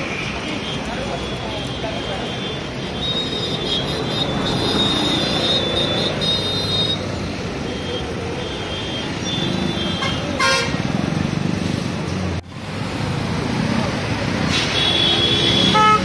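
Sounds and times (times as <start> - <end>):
vehicle engines and road noise: 0.0 - 16.0
vehicle horn honking: 8.4 - 10.8, 14.6 - 16.0.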